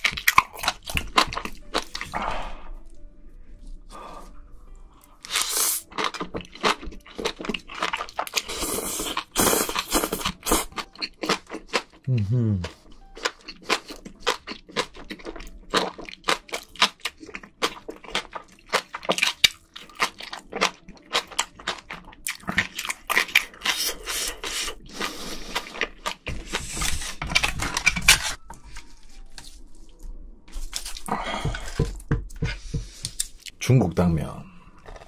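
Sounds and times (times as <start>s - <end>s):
wet chewing and mouth smacks: 5.3s - 28.0s.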